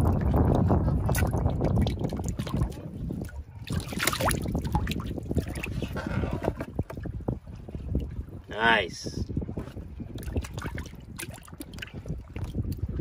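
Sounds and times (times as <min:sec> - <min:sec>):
wind buffeting microphone: 0:00.0 - 0:13.0
water splashing in plastic tub: 0:01.1 - 0:02.8, 0:03.6 - 0:07.1.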